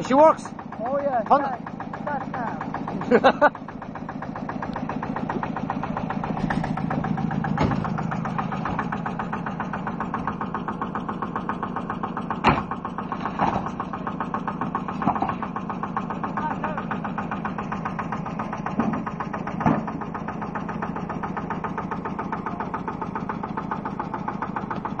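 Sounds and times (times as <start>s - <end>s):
tractor engine idling: 0.0s - 25.0s
sharp knocks: 6.2s - 9.1s, 12.4s - 13.8s, 14.5s - 15.5s, 18.7s - 20.0s.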